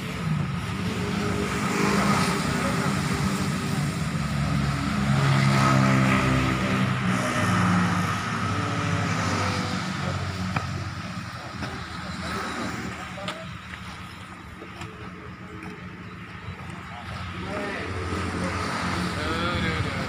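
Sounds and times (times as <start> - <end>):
vehicle engine running: 8.4 - 20.0.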